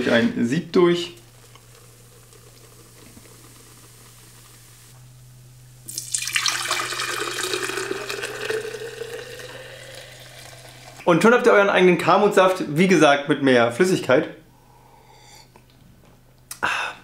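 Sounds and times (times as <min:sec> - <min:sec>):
juice pouring into a jug: 0:01.3 - 0:05.0, 0:05.8 - 0:11.1.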